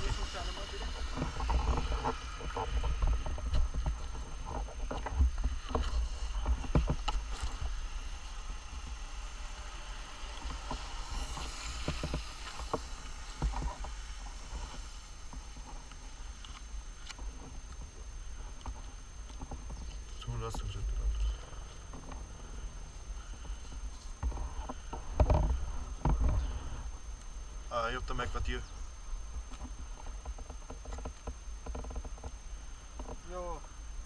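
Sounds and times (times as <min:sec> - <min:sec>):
wind rumble on microphone: 0:00.0 - 0:20.2.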